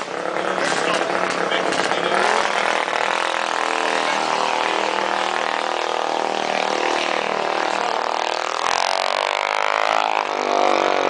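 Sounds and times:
small racing engines revving: 0.0s - 11.0s.

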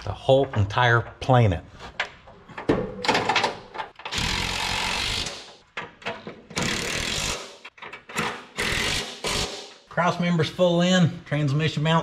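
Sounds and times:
power wrench running: 4.1s - 5.5s, 6.6s - 7.6s, 8.6s - 9.6s.

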